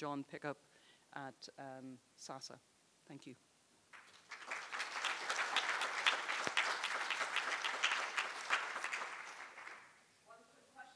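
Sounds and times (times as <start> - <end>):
audience clapping: 3.9 - 10.0.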